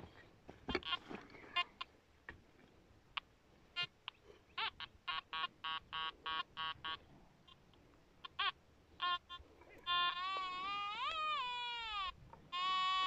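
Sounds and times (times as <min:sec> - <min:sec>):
metal detector beeping: 0:04.6 - 0:07.6, 0:12.6 - 0:13.0.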